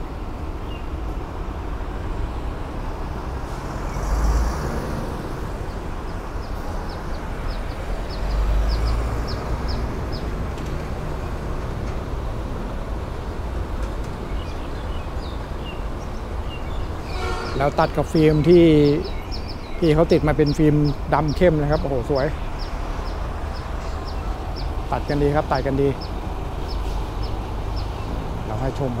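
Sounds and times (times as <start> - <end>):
traffic rumble: 0.0 - 29.0.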